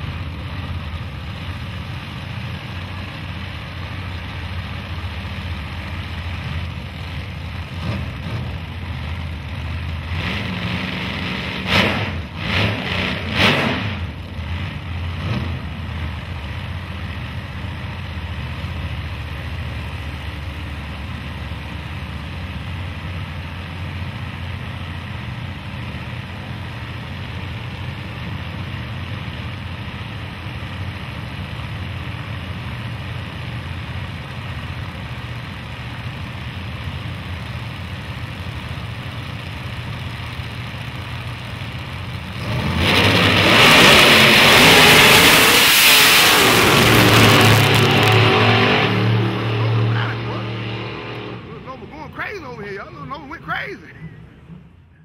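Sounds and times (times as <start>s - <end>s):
race car engines idling: 0.0s - 43.4s, 46.4s - 55.0s
sharp throttle revs: 10.1s - 15.8s, 42.4s - 54.2s.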